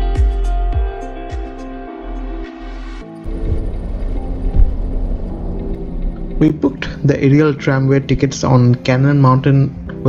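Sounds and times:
held instrument notes: 3.1s - 8.7s
deep thumping beat: 3.3s - 7.7s.

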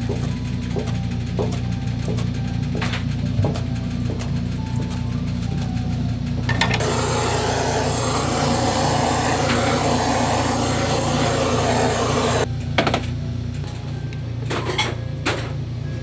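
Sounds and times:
blowtorch clicks: 6.8s - 12.5s
blowtorch flame hissing: 6.8s - 12.5s.

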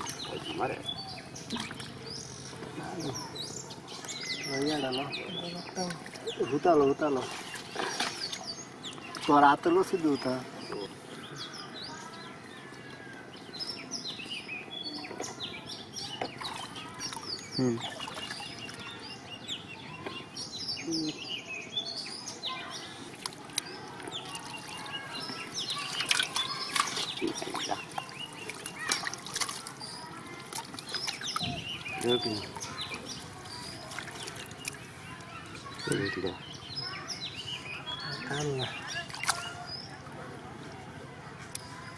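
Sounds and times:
fish splashing in a tub: 0.0s - 3.2s, 5.6s - 9.4s, 16.1s - 19.0s, 23.0s - 36.2s, 38.3s - 40.2s
birds chirping: 0.0s - 41.9s.

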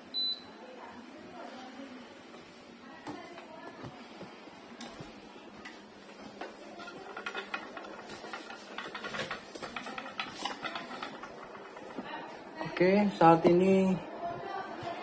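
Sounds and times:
air conditioner mechanical clicking: 4.7s - 13.4s.

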